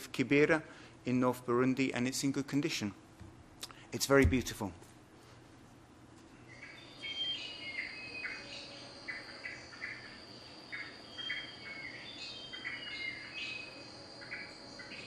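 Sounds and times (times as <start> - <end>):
bird whistles and chirps: 6.5 - 15.0
high-pitched insect drone: 7.8 - 15.0.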